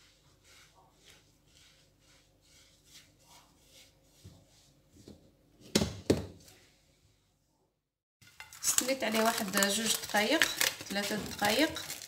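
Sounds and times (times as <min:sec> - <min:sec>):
hand rubbing mixture on plate: 0:00.0 - 0:04.8.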